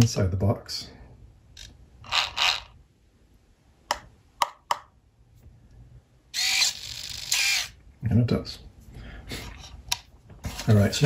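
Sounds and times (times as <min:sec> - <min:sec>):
small servo whirring: 0:02.0 - 0:02.8, 0:06.4 - 0:07.8
soft rubbing noises: 0:10.3 - 0:11.0.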